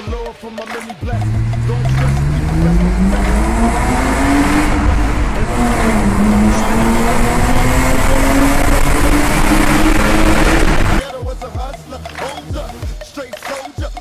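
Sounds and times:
car engine accelerating hard: 1.1 - 11.0.

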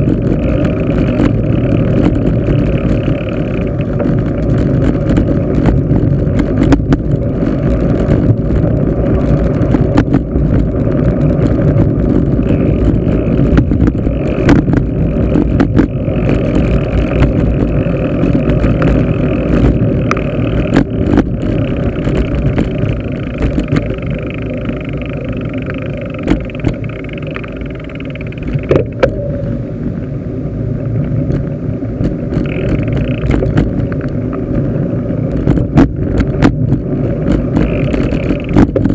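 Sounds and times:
bicycle knocks and rattles: 0.0 - 29.3, 31.0 - 38.9
bicycle road noise: 0.0 - 38.9
wind rumble on microphone: 0.0 - 38.9.

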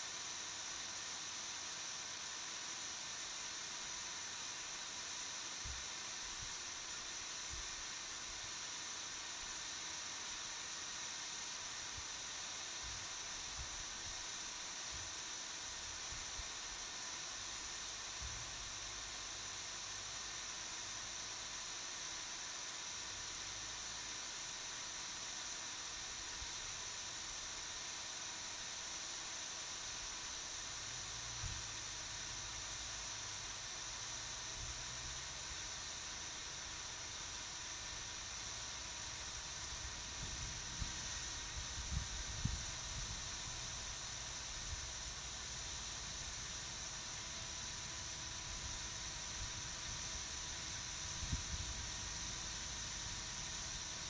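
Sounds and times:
steady hiss: 0.0 - 54.0
wind rumble on microphone: 41.6 - 43.2.

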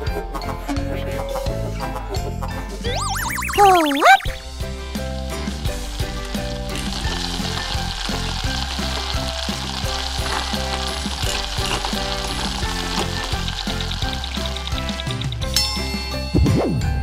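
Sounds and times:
background music: 0.0 - 17.0
food sizzling in a pot: 4.4 - 15.2.

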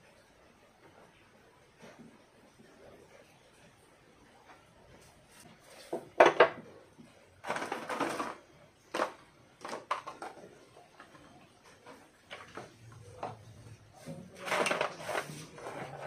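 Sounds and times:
gravel shifting in plastic pot: 7.4 - 16.0.

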